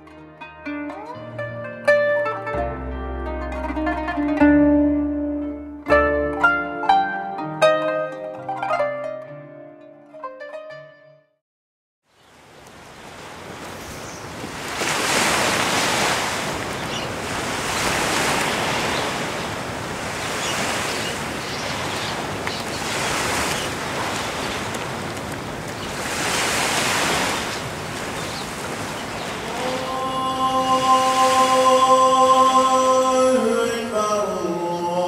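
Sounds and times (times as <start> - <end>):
sea waves breaking on shore: 12.1 - 33.3.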